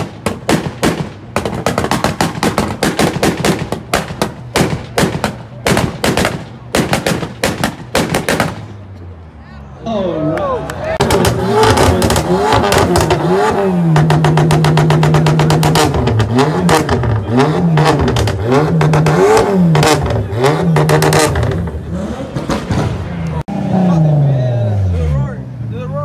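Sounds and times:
exhaust pops and bangs: 0.0s - 8.8s, 11.0s - 23.2s
car engine revving: 10.8s - 26.0s.

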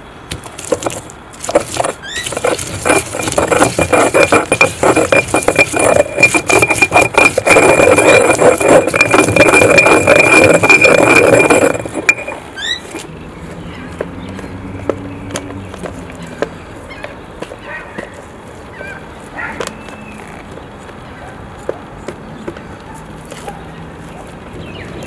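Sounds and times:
stone pestle grinding in mortar: 0.3s - 13.1s.

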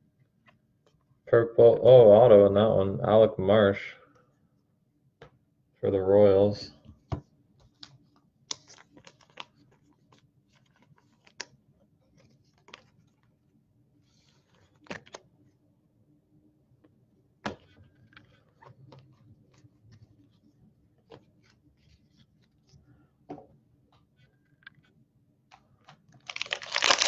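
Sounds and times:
trading cards clicking and rustling: 25.5s - 27.0s.

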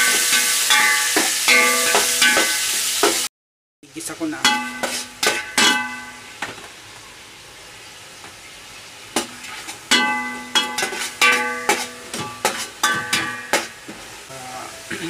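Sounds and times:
spatula clanging against pot: 0.0s - 3.2s, 4.4s - 6.2s, 9.2s - 13.8s
food sizzling in hot oil: 0.0s - 3.3s, 3.9s - 15.0s.

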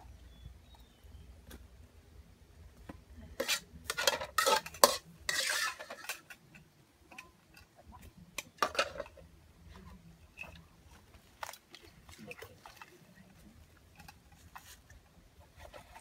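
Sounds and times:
metal spoon scraping a wok: 3.4s - 6.4s.

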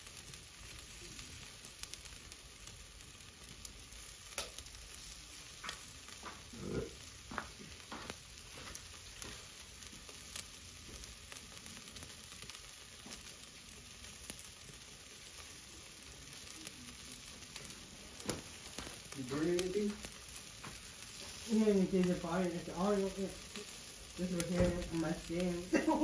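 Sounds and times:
meat sizzling on a grill: 0.0s - 26.0s
thump: 24.6s - 24.9s.

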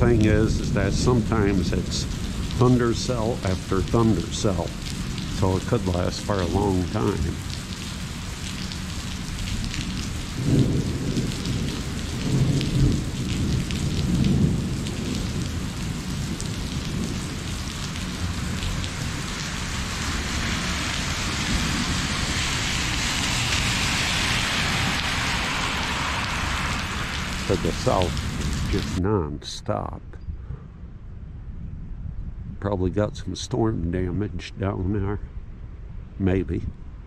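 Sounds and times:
steady rain: 0.0s - 29.2s
thunder rumbling: 0.0s - 29.3s.

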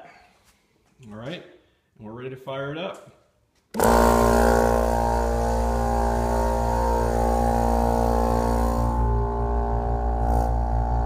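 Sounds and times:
air compressor buzzing drone: 3.7s - 11.0s.

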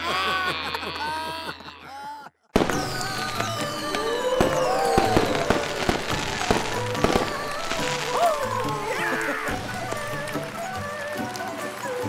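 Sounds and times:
firecracker pops: 2.6s - 11.6s
fireworks going off: 2.6s - 11.6s
falling firework whistles: 2.6s - 11.7s
festive music: 2.6s - 12.0s.

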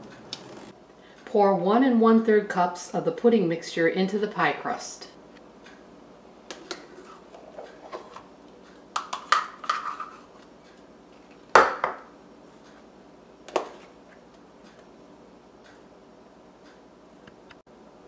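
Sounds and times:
spoon scraping pudding mixture: 6.5s - 8.3s, 9.0s - 10.5s.

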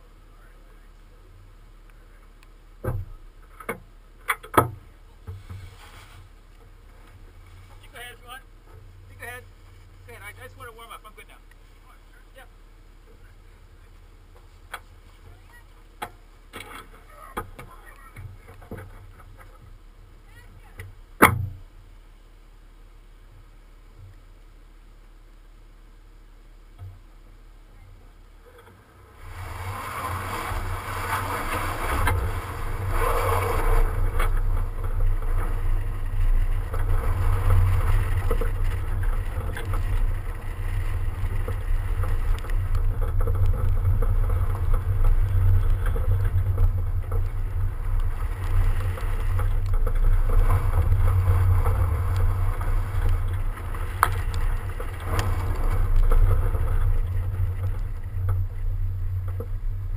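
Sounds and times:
car engine: 0.0s - 59.9s
tyre noise: 27.7s - 59.9s
wind rumble on microphone: 28.5s - 59.9s.

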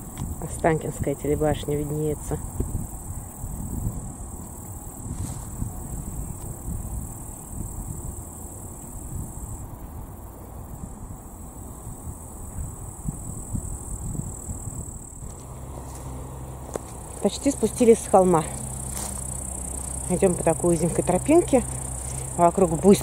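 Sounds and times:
insects chirring: 0.0s - 23.0s
low uneven rumble: 14.2s - 23.0s.

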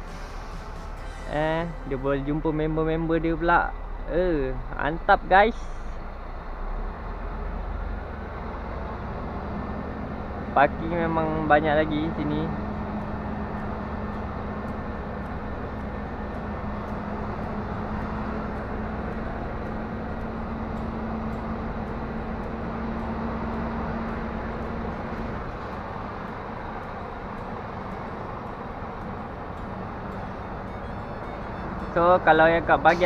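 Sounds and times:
steady engine hum: 0.0s - 33.0s
truck diesel engine running: 0.0s - 33.0s.

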